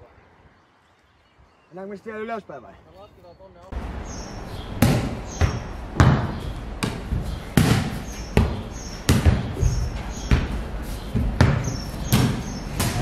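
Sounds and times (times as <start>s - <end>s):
ball smacking on tiled floor: 4.8s - 13.0s.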